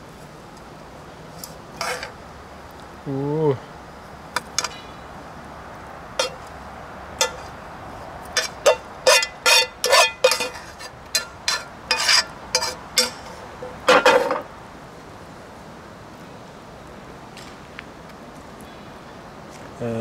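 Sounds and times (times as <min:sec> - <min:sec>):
metal utensil scraping metal pot: 0:01.4 - 0:02.2, 0:06.2 - 0:06.4, 0:07.2 - 0:07.5, 0:08.3 - 0:14.4.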